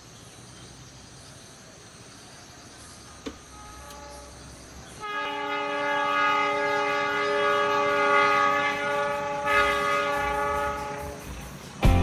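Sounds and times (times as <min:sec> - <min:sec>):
train horn long blast: 0:03.5 - 0:04.4, 0:05.0 - 0:11.4.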